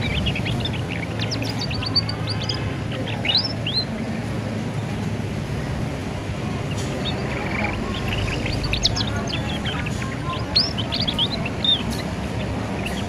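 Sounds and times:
canary chirping: 0:00.0 - 0:04.4, 0:06.5 - 0:13.0.

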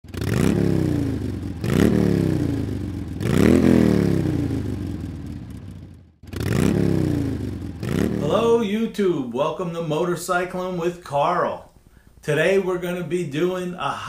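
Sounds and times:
motorcycle engine revving: 0:00.0 - 0:08.7.

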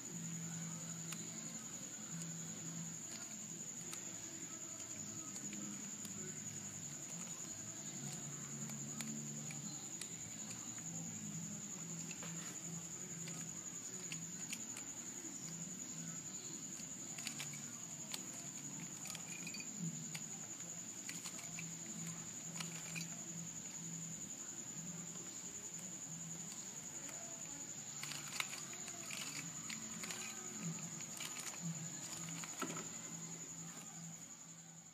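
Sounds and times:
plastic puzzle clicks and clacks: 0:16.8 - 0:20.2, 0:28.0 - 0:33.0.

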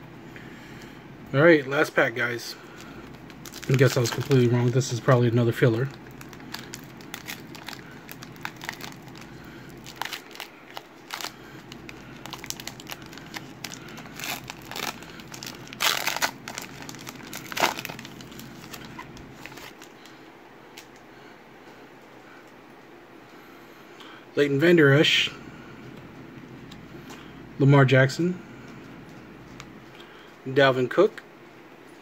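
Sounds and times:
foil wrapper crinkling and tearing: 0:02.2 - 0:20.1.

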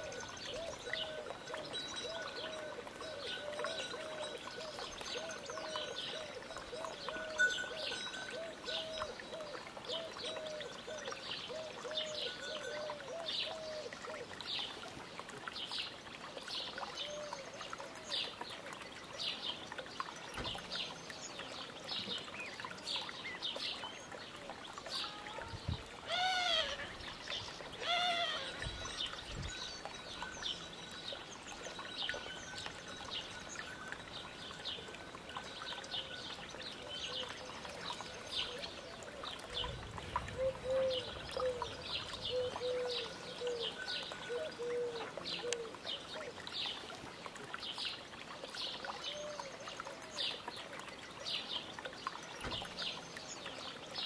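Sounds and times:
lower repeated calls: 0:27.8 - 0:28.7.

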